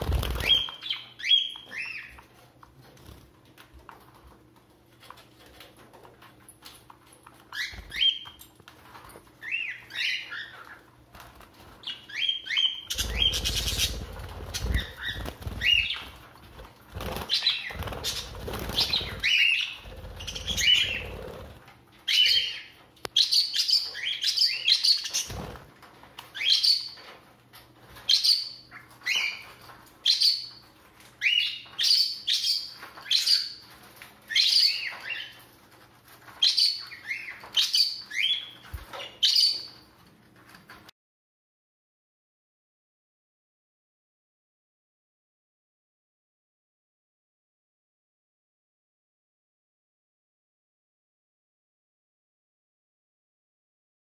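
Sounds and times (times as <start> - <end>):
wing flapping: 0.0 - 0.8, 12.9 - 21.7, 25.1 - 25.8
budgerigars chirping: 11.9 - 14.0, 17.2 - 21.1.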